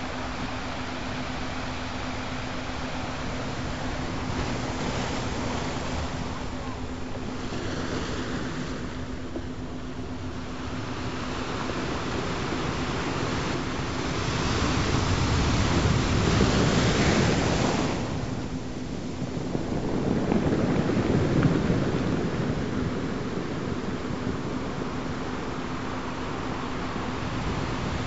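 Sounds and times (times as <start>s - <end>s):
ocean waves washing in: 0.0s - 28.0s.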